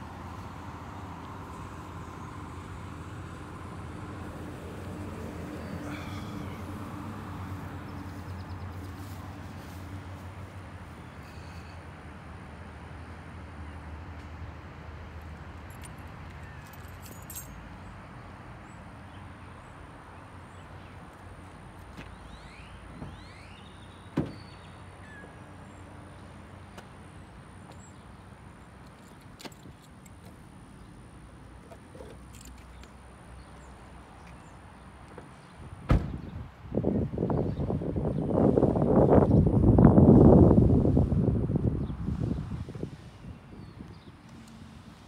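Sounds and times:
low street rumble: 0.0s - 15.9s
wind noise on microphone: 35.9s - 44.2s.

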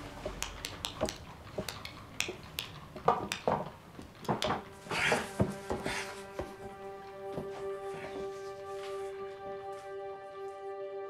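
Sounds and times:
soft music: 0.0s - 2.2s, 4.2s - 11.0s
sharp knocks and clicks: 0.2s - 5.9s
rustling: 3.6s - 10.0s.

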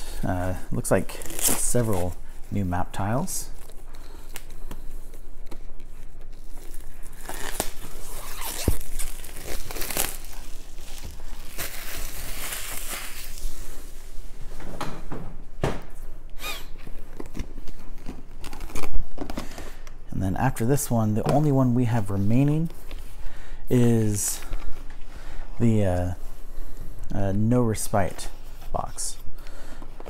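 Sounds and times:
packaging tearing and crinkling: 1.0s - 2.1s, 6.3s - 13.5s, 16.6s - 19.6s.

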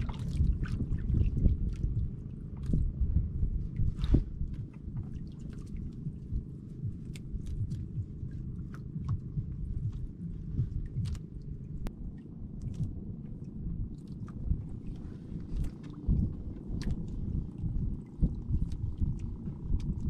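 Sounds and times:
water lapping against canoe hull: 0.0s - 20.0s
wind rumble on microphone: 0.0s - 20.0s.

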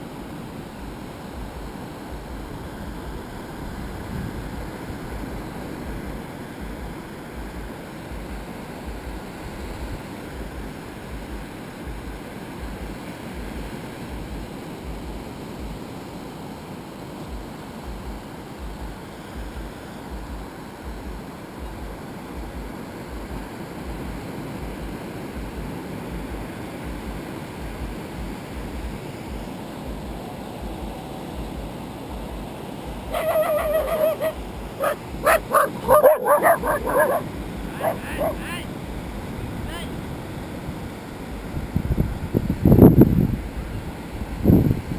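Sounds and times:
surf on a sandy beach: 0.0s - 44.9s
dog barking and yipping: 33.1s - 38.6s.

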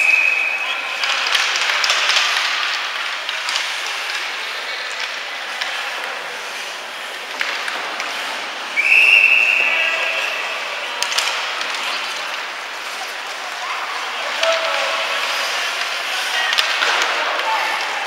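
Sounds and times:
arena noise: 0.0s - 18.0s
hockey sticks and puck clacking: 0.0s - 18.0s
skates hissing on ice: 0.9s - 18.0s.

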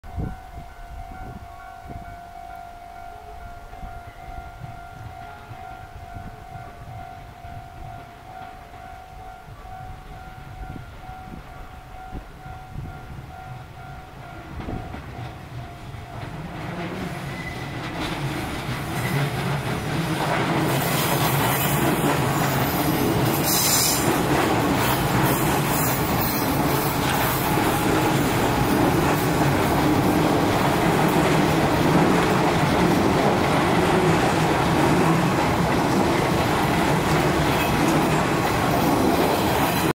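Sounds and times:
train wheels rumbling and clacking: 12.1s - 39.9s
wheels squealing: 16.6s - 39.9s.

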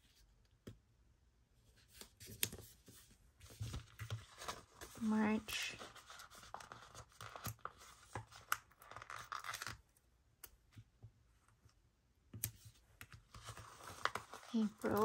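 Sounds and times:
sticker peeling rustle: 12.5s - 15.0s.

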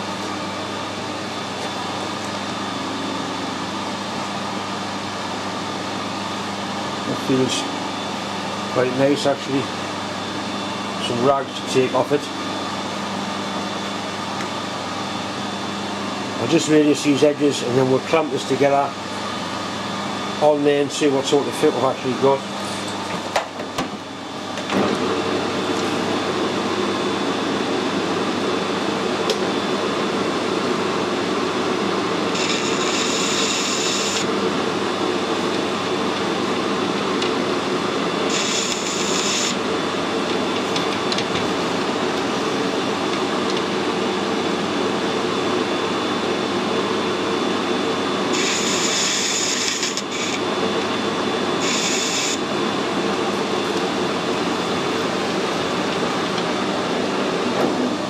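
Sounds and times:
metal lathe running: 32.2s - 37.0s, 38.2s - 44.0s, 48.2s - 56.4s
cutting tool scraping workpiece: 48.4s - 50.4s.

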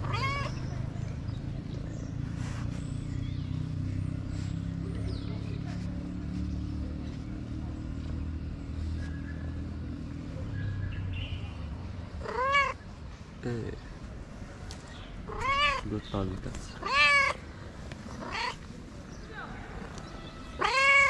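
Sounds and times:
cat meowing: 0.0s - 0.7s, 12.2s - 12.8s, 15.2s - 15.9s, 16.7s - 17.4s, 18.1s - 18.7s, 19.8s - 21.0s.

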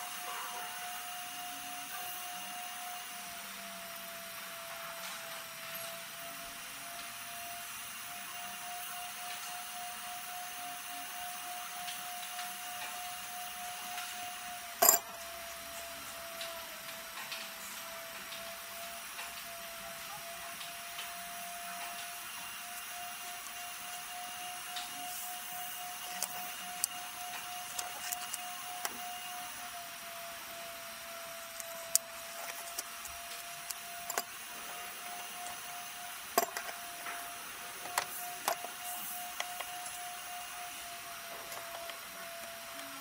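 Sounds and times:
steady hum: 8.7s - 43.0s.

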